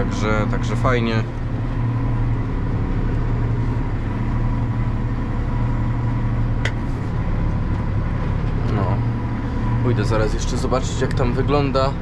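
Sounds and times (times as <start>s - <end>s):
tractor engine drone: 0.0s - 12.0s.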